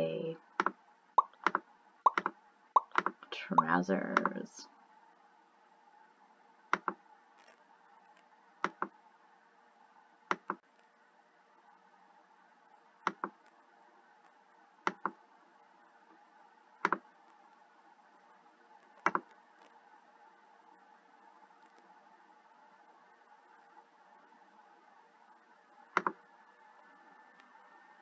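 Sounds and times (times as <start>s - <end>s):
faint steady hum: 0.0s - 28.0s
mouse button clicking: 0.6s - 4.4s.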